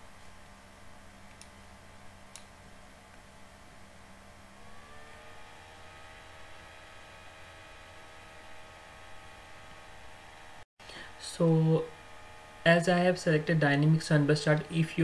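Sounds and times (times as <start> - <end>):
low computer hum: 0.0 - 15.0
mouse clicks: 1.2 - 1.6, 2.3 - 2.5
rising whirring tone: 3.1 - 15.0.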